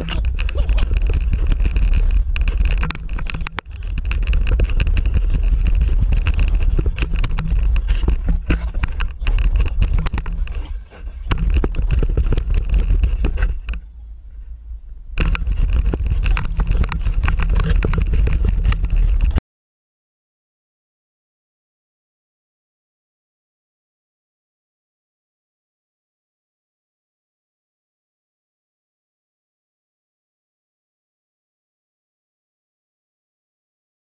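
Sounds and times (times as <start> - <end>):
knocks and scrapes on camera housing: 0.0 - 13.8, 15.2 - 19.4
wind buffeting camera: 0.0 - 19.4.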